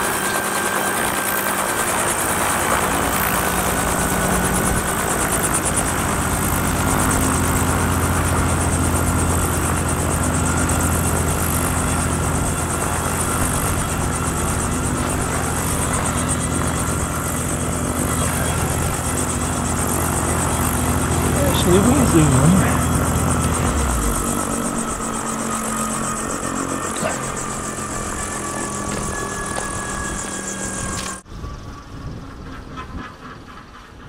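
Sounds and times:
helicopter engine drone: 0:00.0 - 0:34.0
helicopter rotor beat: 0:00.0 - 0:34.0.

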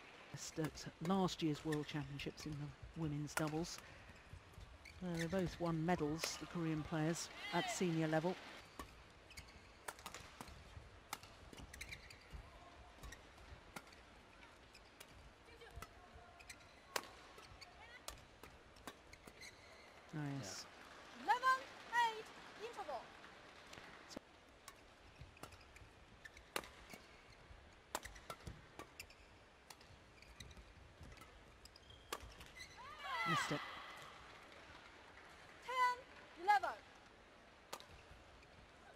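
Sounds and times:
faint arena background: 0:00.0 - 0:38.9
rackets hitting shuttlecock: 0:05.9 - 0:12.4, 0:13.0 - 0:19.5, 0:24.6 - 0:27.3, 0:27.9 - 0:32.6, 0:37.7 - 0:38.1.

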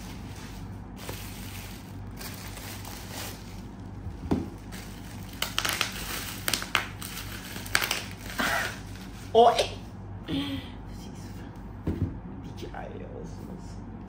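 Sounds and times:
bubble wrap rustling: 0:00.0 - 0:09.4
bubble wrap popping: 0:01.0 - 0:09.1.

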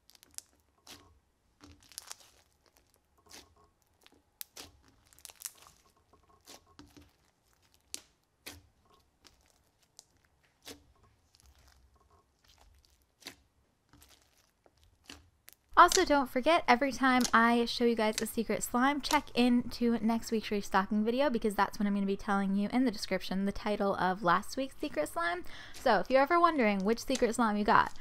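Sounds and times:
slime squishing and popping: 0:00.0 - 0:16.1, 0:17.2 - 0:17.4.

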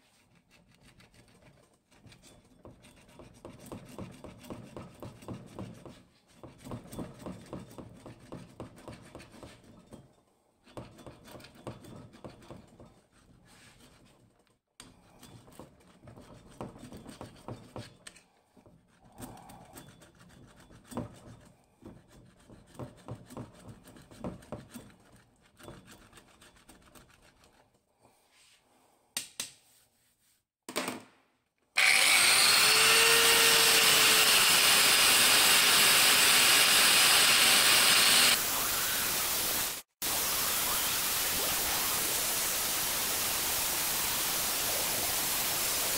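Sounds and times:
angle grinder grinding metal: 0:31.8 - 0:45.9.

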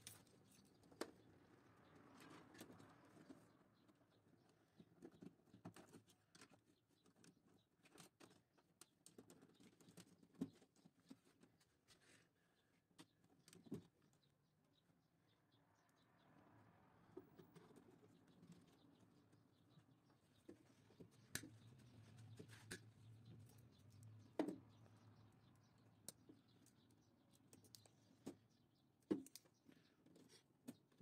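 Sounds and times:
light clicks of wires in plastic duct: 0:20.4 - 0:24.7, 0:26.0 - 0:31.0.

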